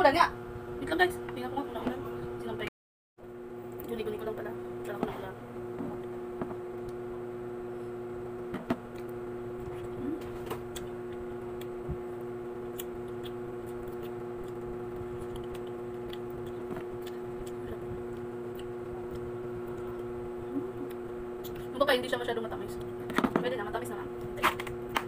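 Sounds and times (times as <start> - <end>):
steady low hum: 0.0 - 25.0
person chewing: 12.6 - 21.7.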